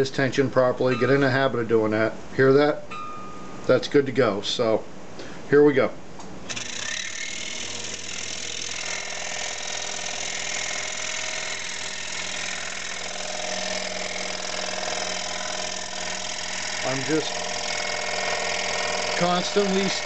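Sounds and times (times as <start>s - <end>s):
scroll saw cutting plywood: 6.5s - 20.0s.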